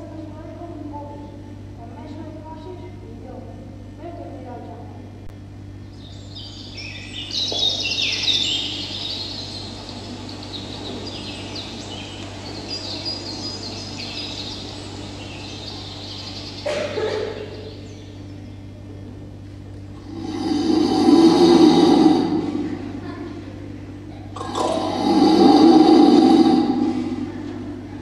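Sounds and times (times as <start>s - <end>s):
steady low hum: 0.0s - 28.0s
birds chirping and trilling: 5.7s - 19.1s, 19.9s - 28.0s.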